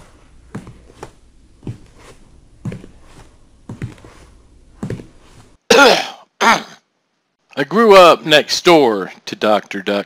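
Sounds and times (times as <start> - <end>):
low room hum: 0.0 - 10.0
footsteps on wooden floor: 0.5 - 5.6.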